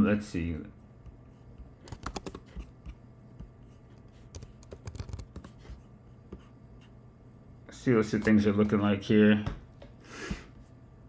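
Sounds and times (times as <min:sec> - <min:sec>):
typing on computer keyboard: 0:01.8 - 0:02.5, 0:04.3 - 0:05.5.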